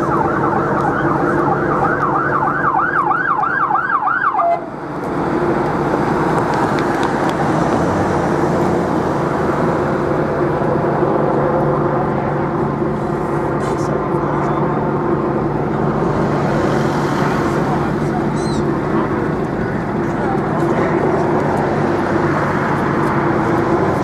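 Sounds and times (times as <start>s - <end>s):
police siren yelping: 0.0s - 4.8s
vehicle engine and road noise: 0.0s - 24.0s.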